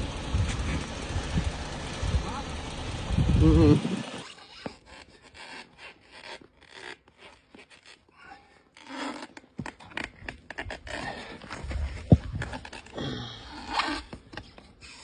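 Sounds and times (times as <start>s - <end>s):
rubber tyre scraping rim: 0.0s - 15.0s.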